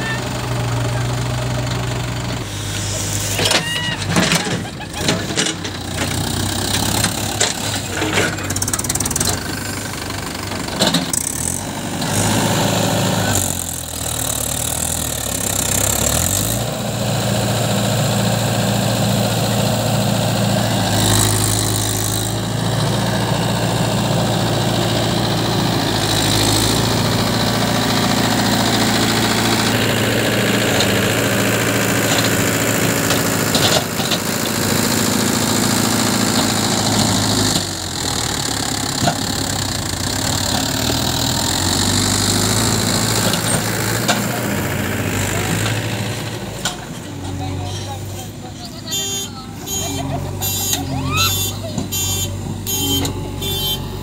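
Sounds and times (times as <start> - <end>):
diesel tractor engine under load: 0.0 - 54.0
knocks and clatter: 3.4 - 9.5, 31.9 - 34.6.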